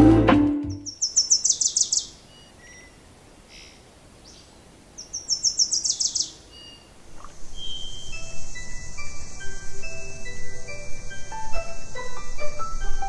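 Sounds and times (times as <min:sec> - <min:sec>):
songbird singing: 0:00.6 - 0:13.0
soft chime-like music: 0:08.0 - 0:13.0.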